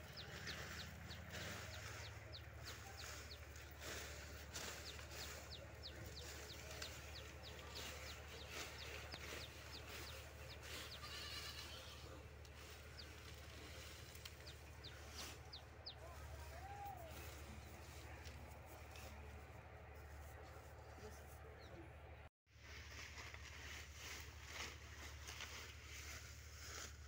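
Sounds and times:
faint livestock call: 0:10.0 - 0:12.3.

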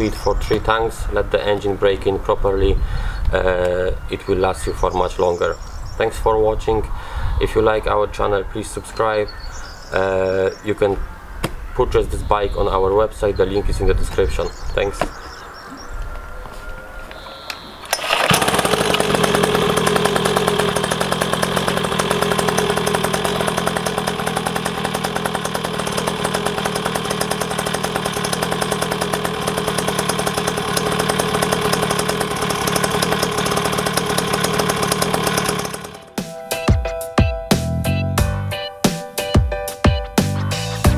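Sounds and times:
two-stroke dirt bike engine: 0:17.9 - 0:36.2.

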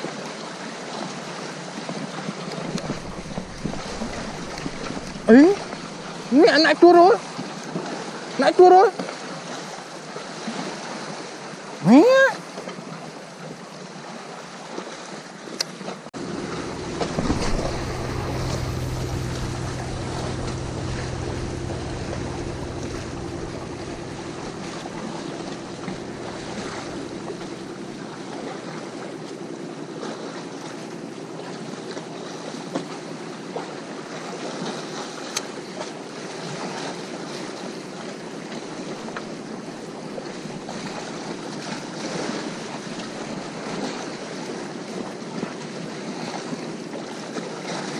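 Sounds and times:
steady low drone: 0:02.7 - 0:06.3, 0:16.2 - 0:29.7
sea waves washing on shore: 0:02.7 - 0:07.2, 0:16.2 - 0:29.6
wind on microphone: 0:16.2 - 0:28.2.

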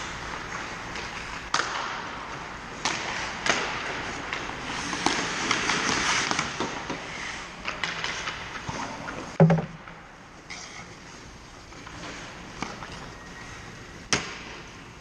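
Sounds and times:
hockey sticks and puck clacking: 0:00.0 - 0:11.0, 0:11.6 - 0:14.8
skate blades scraping on ice: 0:02.8 - 0:09.3.

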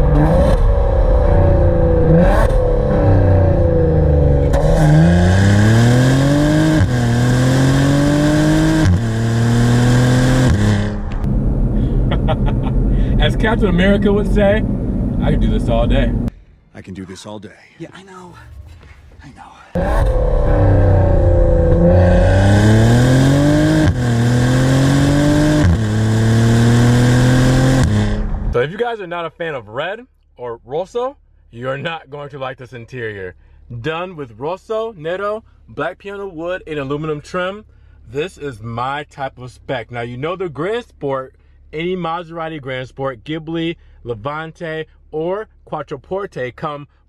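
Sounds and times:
car exhaust revving with upshifts: 0:00.0 - 0:16.3, 0:19.8 - 0:28.6.

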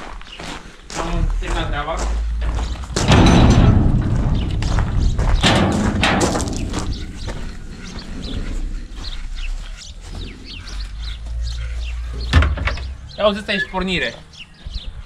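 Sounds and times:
birds chirping: 0:00.0 - 0:15.0
gate thud: 0:02.4 - 0:08.8, 0:12.2 - 0:13.0
metal gate rattling open: 0:02.4 - 0:08.8.

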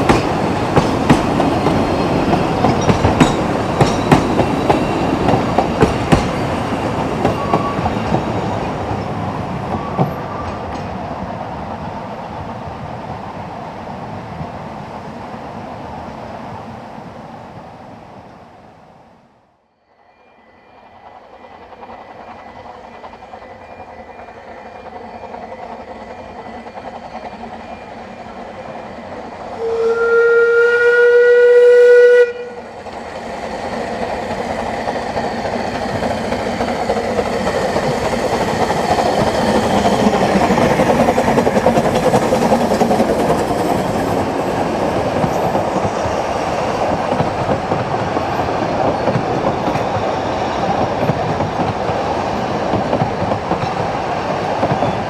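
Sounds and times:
train wheels clattering on rails: 0:00.0 - 0:11.2, 0:32.8 - 0:55.0
steam whistle: 0:29.5 - 0:32.8.

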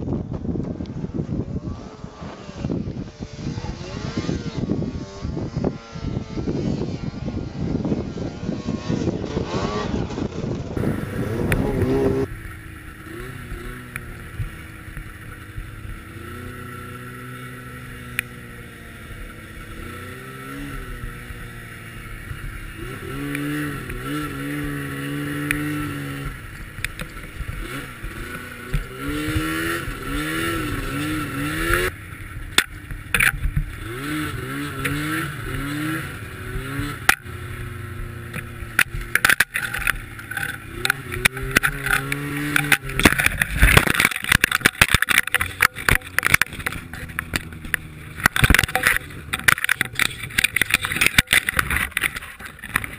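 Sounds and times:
snowmobile engine revving: 0:01.3 - 0:52.9
knocks and scrapes of branches: 0:10.7 - 0:52.9.

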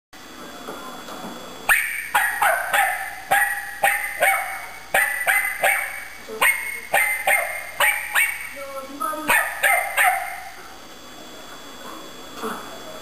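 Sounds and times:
small dog barking: 0:01.7 - 0:08.6, 0:09.3 - 0:10.6.

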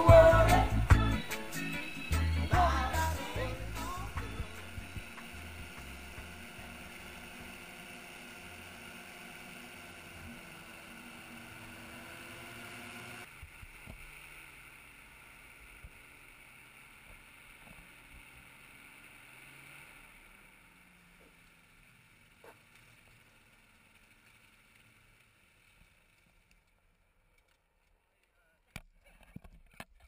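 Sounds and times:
aircraft engine running: 0:00.0 - 0:19.3.

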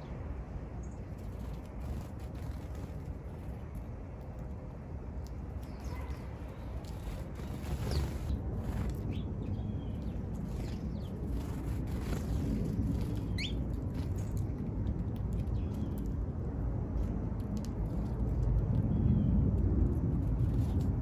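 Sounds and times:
sparrows chirping: 0:00.8 - 0:03.8, 0:05.3 - 0:16.3
low rumble: 0:02.6 - 0:21.0.

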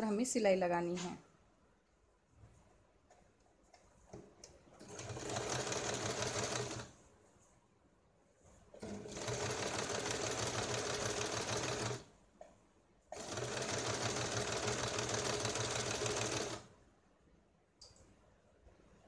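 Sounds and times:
electric sewing machine stitching: 0:04.8 - 0:06.9, 0:08.8 - 0:12.0, 0:13.2 - 0:16.7.

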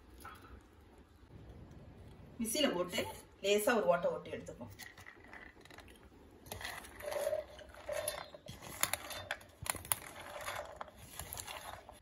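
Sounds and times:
metal scraping on jar rim: 0:04.7 - 0:12.0.

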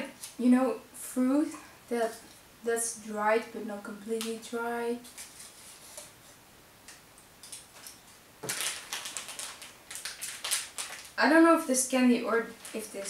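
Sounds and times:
plastic wrapper crinkling: 0:07.4 - 0:11.3, 0:12.2 - 0:13.0.

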